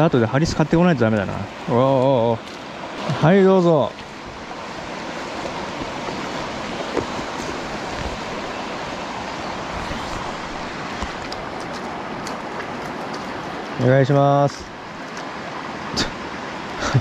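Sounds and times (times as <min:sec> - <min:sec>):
mountain stream rushing: 0:00.0 - 0:17.0.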